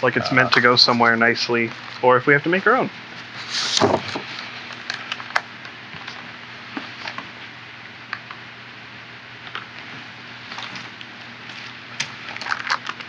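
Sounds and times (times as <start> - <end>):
packing foam and plastic crinkling: 11.5 - 13.0.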